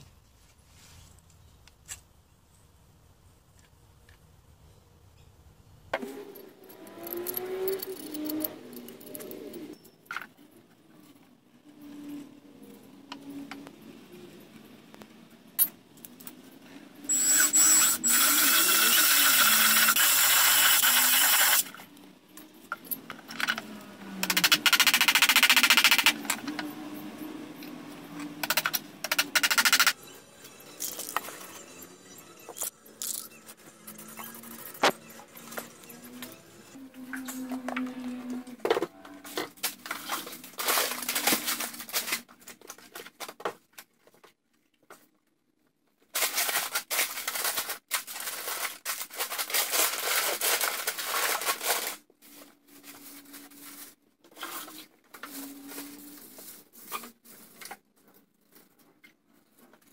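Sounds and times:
cordless drill into timber: 17.1 - 21.7.

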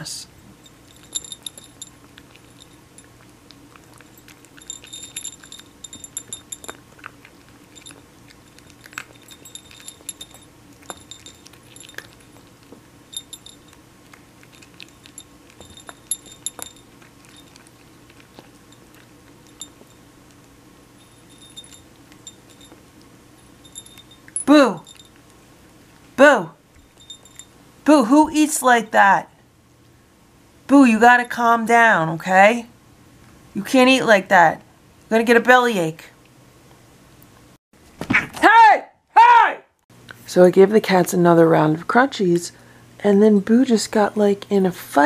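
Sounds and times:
cat crunching dry kibble: 0.5 - 26.2.

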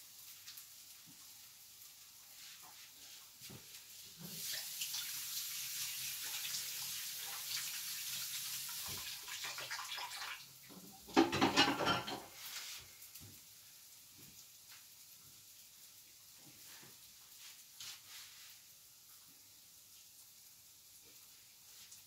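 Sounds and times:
tap water running: 0.0 - 13.5.

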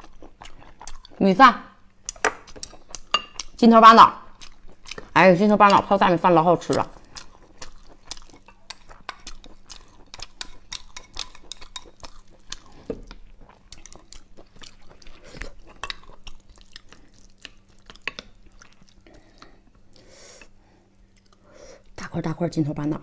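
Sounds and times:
chopsticks and spoon tapping bowl: 2.2 - 3.5.

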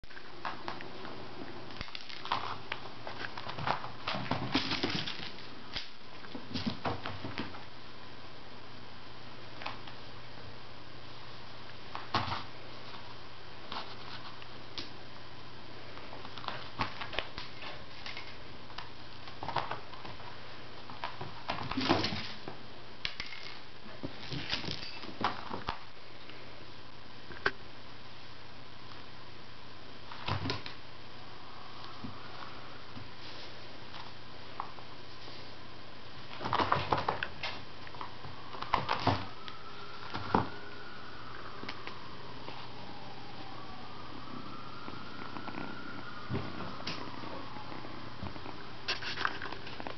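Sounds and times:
scrabbling paws: 45.3 - 49.9.

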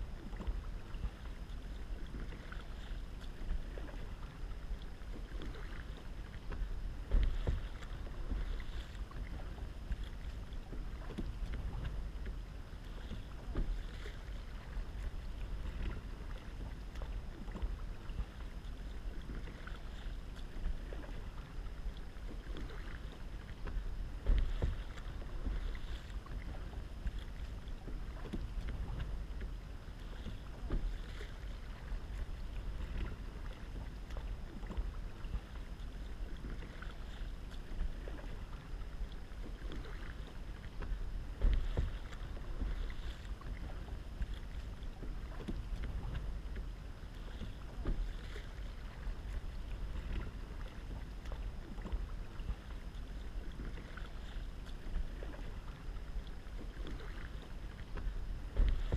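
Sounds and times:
kayak paddle splashing: 0.0 - 58.9
water lapping against hull: 0.0 - 58.9
wind rumble on microphone: 0.0 - 58.9
thumps on kayak: 58.5 - 58.9.

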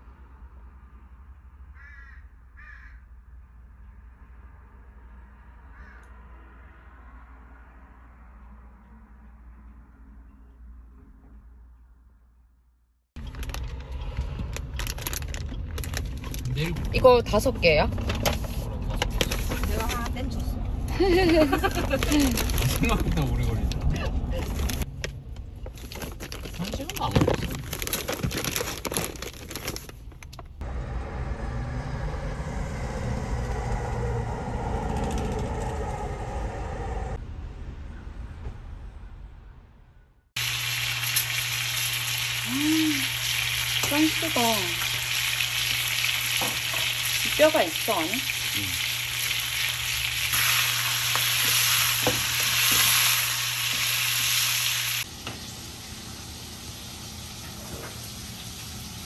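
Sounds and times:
mechanical hum with low rumble: 13.2 - 47.6, 48.2 - 59.0
steak sizzling in a pan: 40.4 - 55.0.

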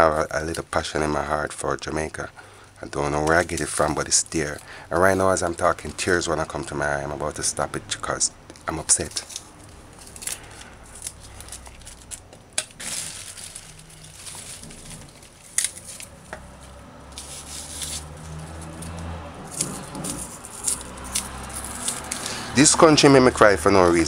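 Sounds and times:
plastic and paper crinkling: 2.9 - 6.8, 8.5 - 24.0
knife trimming scallion: 15.6 - 22.5.

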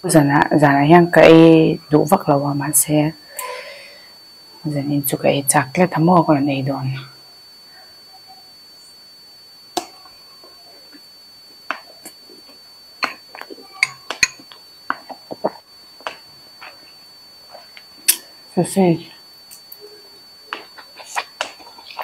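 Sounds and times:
faint high-pitched whine: 0.0 - 22.0
mouth smacking and chewing: 11.7 - 16.8
forks clicking against glass bowl: 13.8 - 14.5.

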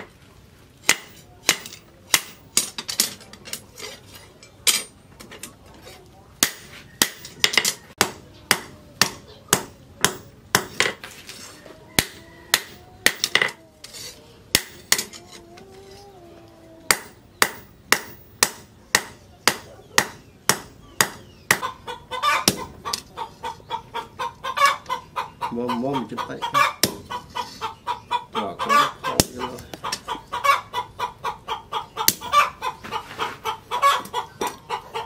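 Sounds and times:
chickens clucking: 3.1 - 35.0
rooster crowing: 11.5 - 13.0.

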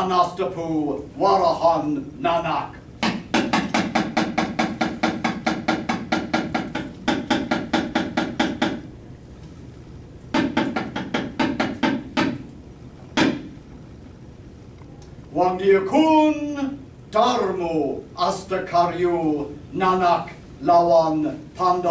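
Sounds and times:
rapid wooden knocking: 3.0 - 8.9, 10.3 - 12.4, 13.2 - 13.5.

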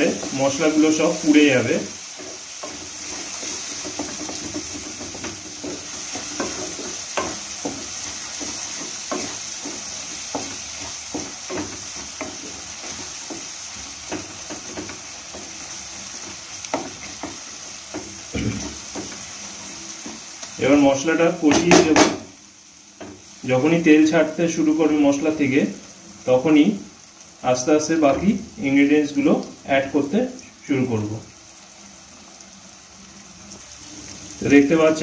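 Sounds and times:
spatula scraping frying pan: 0.0 - 20.4
oil sizzling: 0.0 - 35.0
spatula knocking against pan: 2.2 - 15.6.

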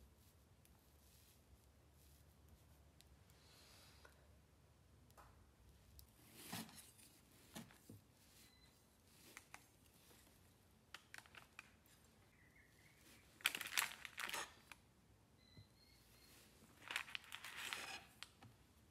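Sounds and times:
parchment paper crinkling: 9.1 - 14.8, 16.6 - 18.4.

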